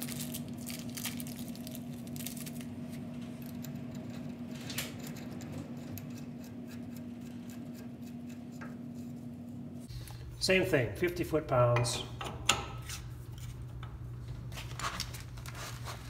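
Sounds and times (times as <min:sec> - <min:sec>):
steady electrical hum: 0:00.0 - 0:16.0
metal nut clicking and scraping: 0:03.4 - 0:09.1.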